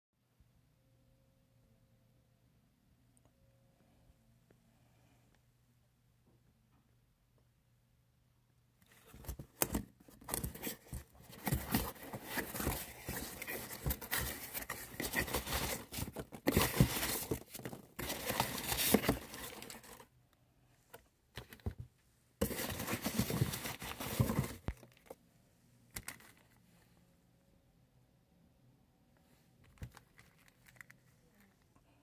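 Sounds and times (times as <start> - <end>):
packing peanuts rustling: 10.2 - 20.0.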